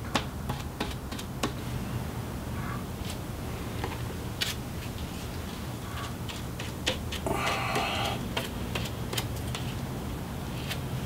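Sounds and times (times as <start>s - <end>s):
brush scraping: 3.8s - 9.9s.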